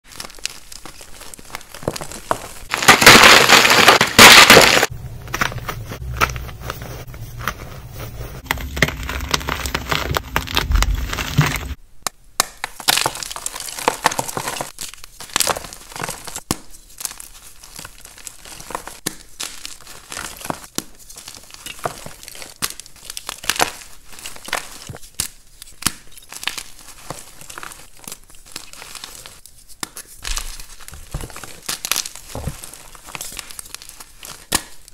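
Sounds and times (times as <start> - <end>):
chalk crushed in hands: 0.1 - 11.8, 12.4 - 34.9
chalk crackling: 0.4 - 11.8.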